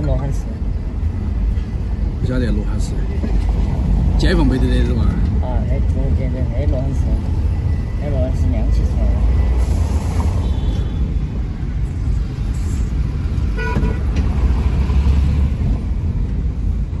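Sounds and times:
car road and engine rumble: 0.0s - 17.0s
car horn toot: 10.4s - 11.1s, 13.5s - 14.1s.

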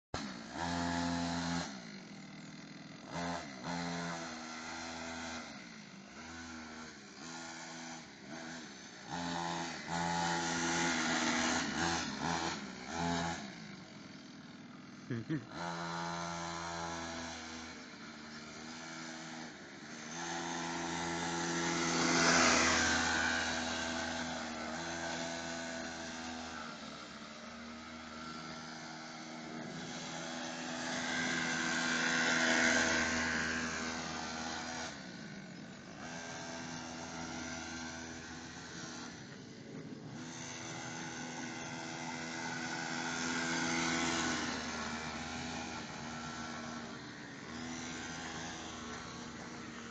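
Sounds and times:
quad bike engine revving: 0.2s - 49.9s.

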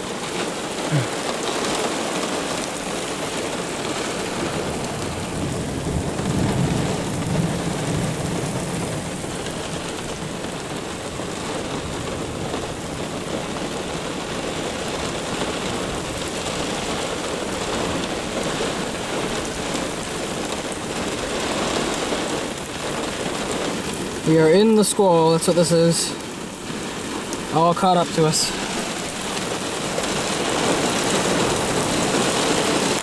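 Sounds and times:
heavy rain on pavement: 0.0s - 33.0s
thunder rumble: 3.6s - 14.1s.

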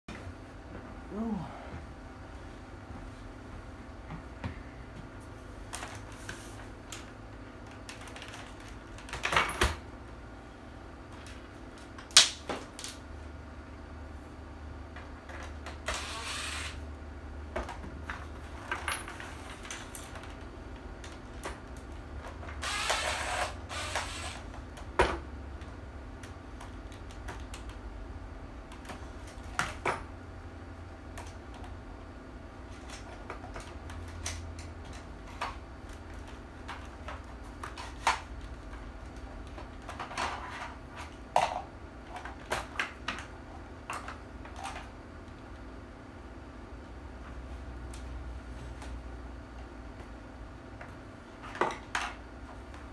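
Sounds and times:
steady low hum: 0.1s - 9.1s
clicks and knocks of parts handled: 11.1s - 13.0s.

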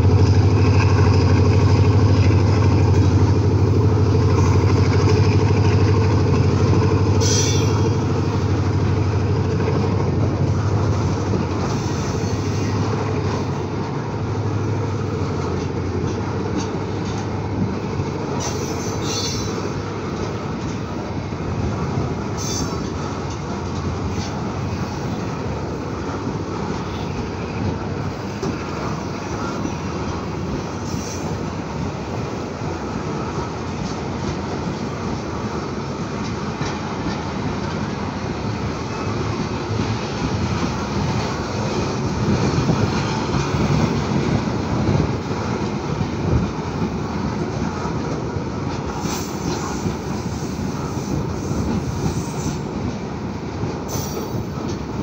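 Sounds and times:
freight train wheels on track: 0.0s - 55.0s.

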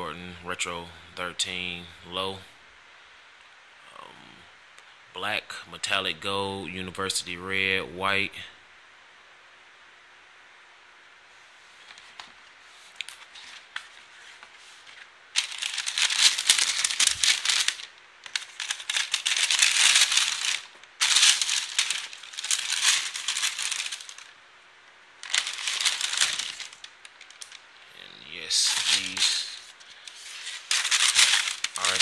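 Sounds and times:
tissue paper rustling: 11.6s - 24.4s, 25.2s - 27.6s, 28.5s - 32.0s.

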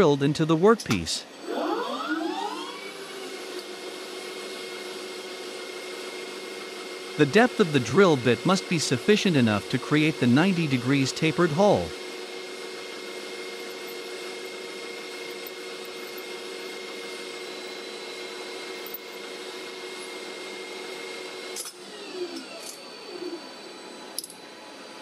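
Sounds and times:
falling whines: 1.4s - 2.9s
metal lathe humming: 7.0s - 23.5s.

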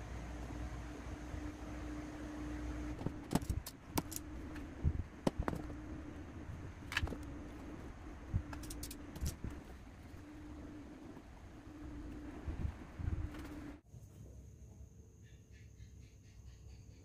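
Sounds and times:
low steady hum: 0.0s - 15.2s
small parts clicking on plastic box: 8.5s - 9.4s.

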